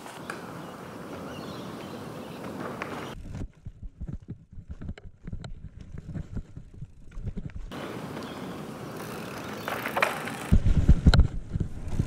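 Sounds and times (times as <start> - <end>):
bike rolling over wooden planks: 2.8 - 12.0.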